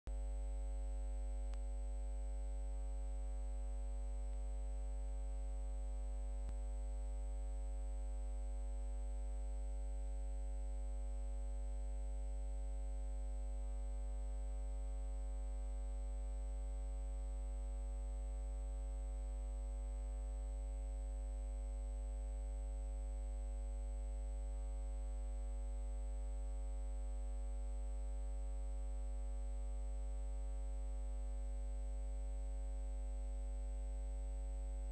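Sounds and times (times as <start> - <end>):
electrical hum: 0.1 - 18.2
faint high-pitched whine: 0.1 - 34.9.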